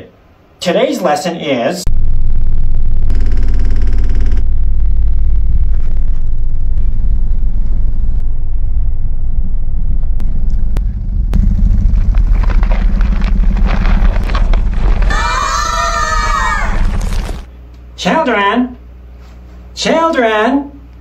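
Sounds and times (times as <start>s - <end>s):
deep bass from subwoofers: 1.9s - 15.2s
rattling crackling noise: 10.0s - 17.5s.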